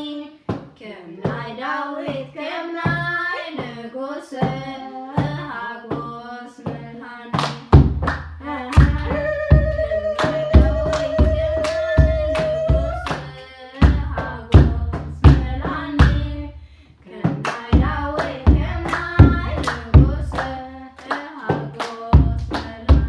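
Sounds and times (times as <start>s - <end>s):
woman and children singing: 0.0s - 7.8s, 8.4s - 23.0s
hand claps with deep thud: 7.4s - 9.2s, 17.3s - 23.0s.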